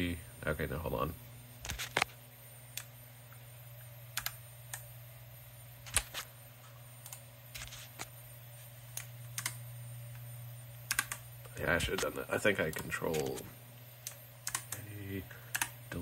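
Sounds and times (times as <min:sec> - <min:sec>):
low steady hum: 0:00.0 - 0:16.0
keyboard keystroke clicks: 0:10.9 - 0:11.2.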